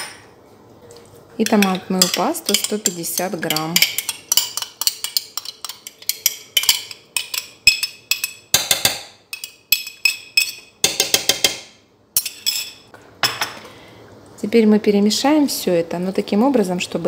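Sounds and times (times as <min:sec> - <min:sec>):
metal spoon clinking on glass: 0:01.4 - 0:11.5, 0:12.2 - 0:13.4.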